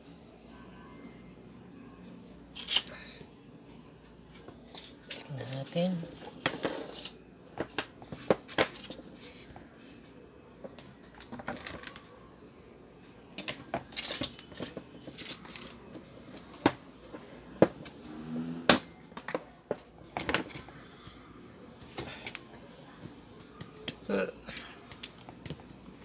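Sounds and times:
plastic fan parts clicking: 24.5 - 26.0.

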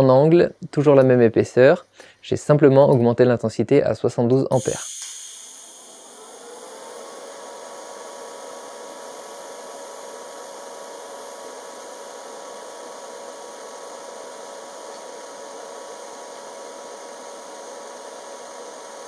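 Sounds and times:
welding arc hiss: 4.6 - 19.0.

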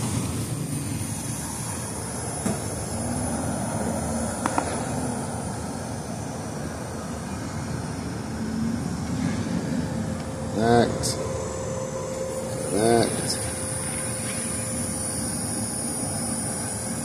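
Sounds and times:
air conditioning running: 0.0 - 17.0.

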